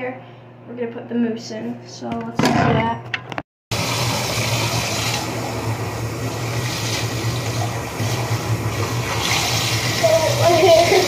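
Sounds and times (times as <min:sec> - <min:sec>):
water pouring into bathtub: 0:03.7 - 0:11.0.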